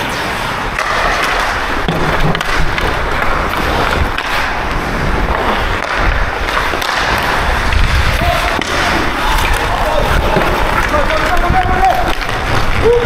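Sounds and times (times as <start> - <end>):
ice skate blades scraping ice: 0.0 - 13.0
wind on microphone: 1.6 - 13.0
sharp knocks: 1.8 - 2.9.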